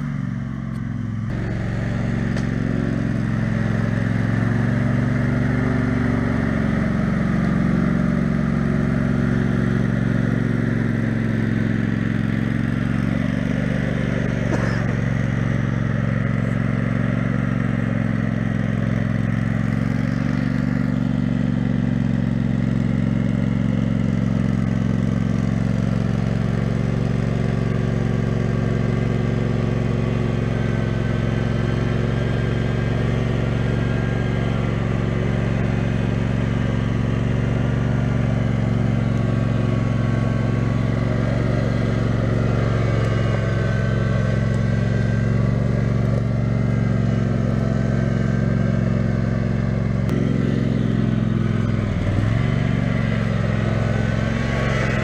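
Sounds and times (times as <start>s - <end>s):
lawn tractor engine running: 0.0s - 55.0s.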